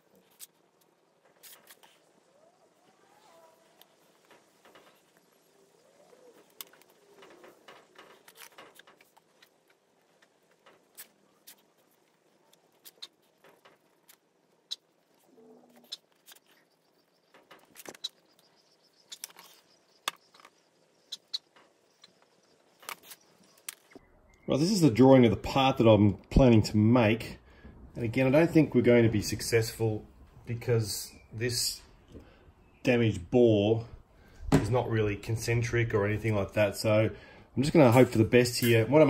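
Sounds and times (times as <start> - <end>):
whiteboard marker squeaking: 12.7 - 13.4, 15.6 - 17.0, 17.6 - 23.2.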